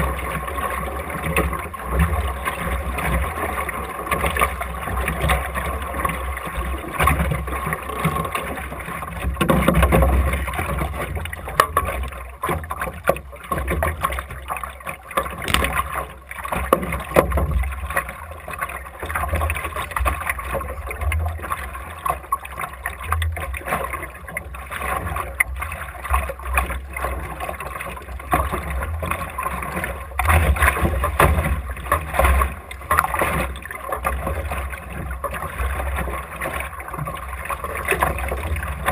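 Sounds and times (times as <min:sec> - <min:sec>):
water slapping against hull: 0:00.0 - 0:38.9
knocks from boat: 0:15.4 - 0:16.1.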